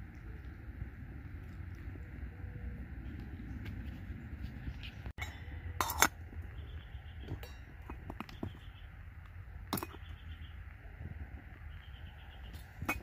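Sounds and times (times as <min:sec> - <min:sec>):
metal lid clinking on pot: 0:05.2 - 0:06.2
wire handle clinking against pot: 0:05.2 - 0:06.2.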